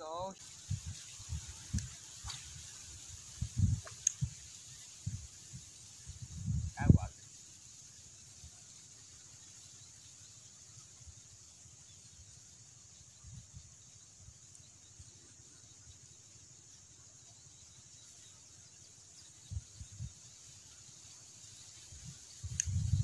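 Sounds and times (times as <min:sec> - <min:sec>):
high insect chirring: 0:00.0 - 0:23.0
wind rumble on microphone: 0:00.5 - 0:07.2, 0:19.4 - 0:20.2, 0:21.9 - 0:23.0.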